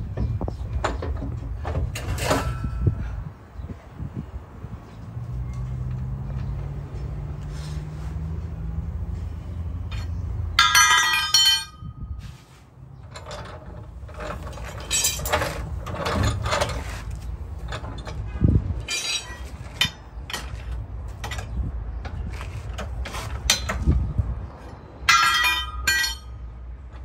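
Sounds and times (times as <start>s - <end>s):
metal tools clanking: 0.8s - 3.1s, 9.8s - 12.0s, 13.0s - 26.5s.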